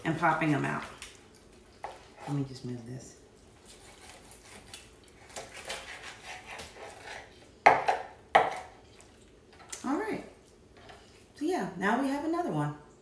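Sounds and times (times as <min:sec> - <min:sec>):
knife slicing raw chicken: 0:03.6 - 0:08.7.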